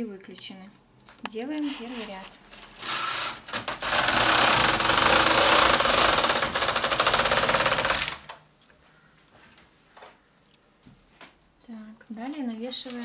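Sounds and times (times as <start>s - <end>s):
knitting machine carriage clattering: 2.6s - 8.3s.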